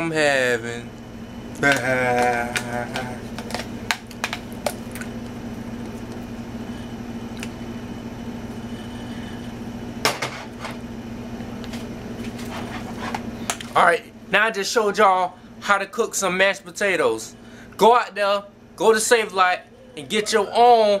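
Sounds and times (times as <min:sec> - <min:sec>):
steady low hum: 0:00.0 - 0:21.0
pot set down clatter: 0:10.0 - 0:10.8.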